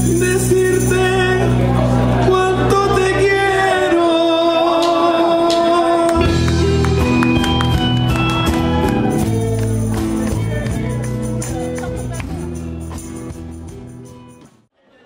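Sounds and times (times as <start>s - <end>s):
live band playing: 0.0s - 4.1s, 4.7s - 14.6s
person singing: 0.0s - 8.0s
bass guitar: 0.0s - 14.7s.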